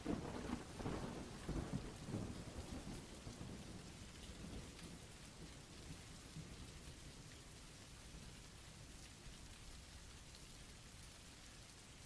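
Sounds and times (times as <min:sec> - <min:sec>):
low thunder rumble: 0:00.0 - 0:05.0
steady rain: 0:00.0 - 0:12.0.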